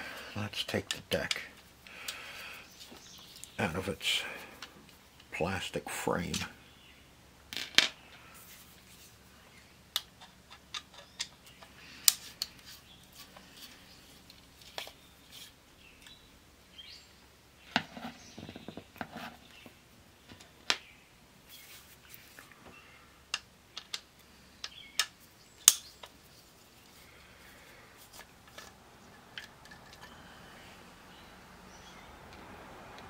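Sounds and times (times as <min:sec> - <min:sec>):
small parts rattling: 0:28.0 - 0:30.2.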